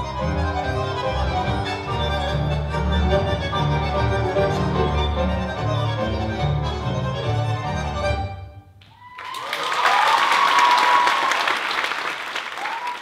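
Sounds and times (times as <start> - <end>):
orchestral tango music: 0.0 - 8.9
audience applause with cheering: 8.9 - 13.0.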